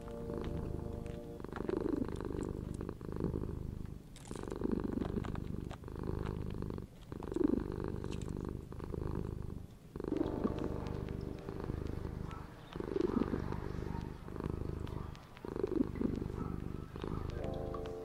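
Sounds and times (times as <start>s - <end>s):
kitten purring: 0.0s - 18.0s.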